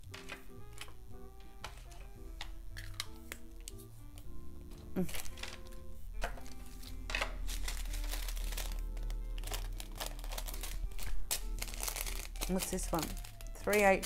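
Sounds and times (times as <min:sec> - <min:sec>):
background music: 0:00.0 - 0:14.0
plastic bags crinkling: 0:05.0 - 0:14.0.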